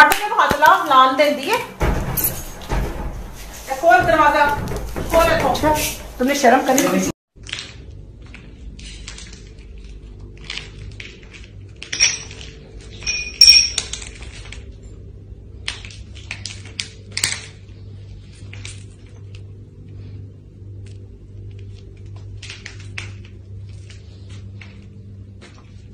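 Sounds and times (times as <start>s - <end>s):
low hum: 1.6s - 7.1s, 7.8s - 16.3s
shards clinking on stone floor: 11.8s - 14.1s.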